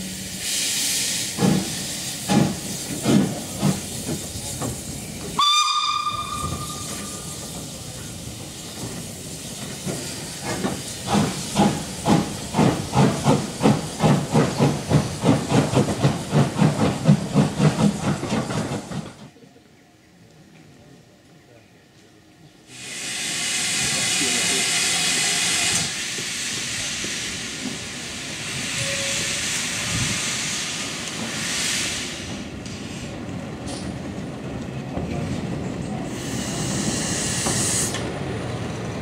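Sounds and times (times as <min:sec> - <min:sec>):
steam hissing: 0:00.0 - 0:18.8, 0:22.7 - 0:33.2, 0:36.0 - 0:38.2
steam locomotive whistle: 0:05.4 - 0:07.4, 0:28.7 - 0:29.5.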